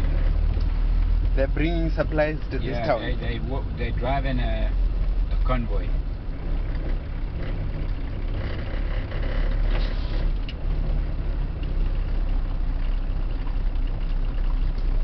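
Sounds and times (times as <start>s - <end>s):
car engine and road rumble: 0.0s - 15.0s
faint knocks and rattles: 4.7s - 15.0s.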